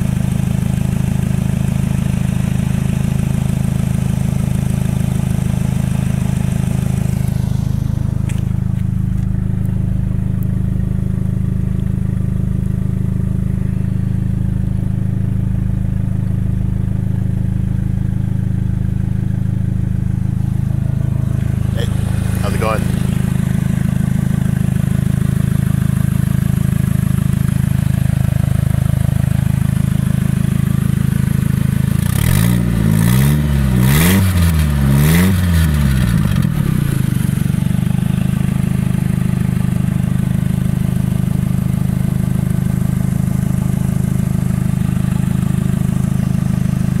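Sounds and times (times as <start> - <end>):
car engine idling and revving: 0.0 - 47.0.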